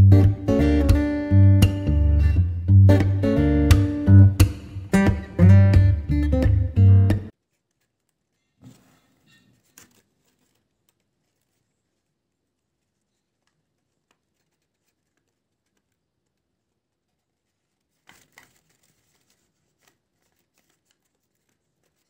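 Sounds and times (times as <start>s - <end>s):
paper rustling: 7.3s - 22.0s.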